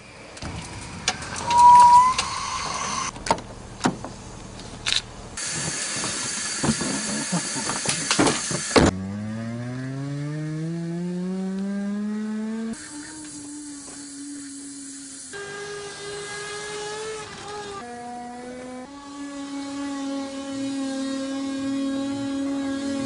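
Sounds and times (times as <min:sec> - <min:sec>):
loud high squeak: 0:01.2 - 0:03.1
liquid nitrogen hissing: 0:05.4 - 0:08.8, 0:12.8 - 0:15.4
car engine pulling away: 0:08.8 - 0:14.1, 0:15.3 - 0:23.0.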